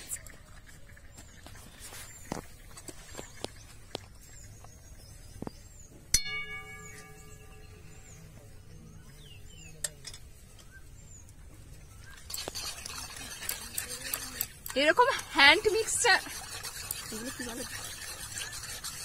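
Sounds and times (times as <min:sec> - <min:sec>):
whisk stirring in a pan: 0:12.2 - 0:19.0.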